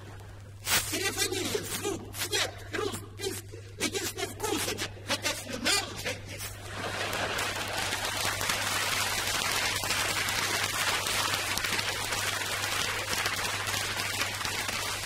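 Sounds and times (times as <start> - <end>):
audience applause: 6.6 - 15.0.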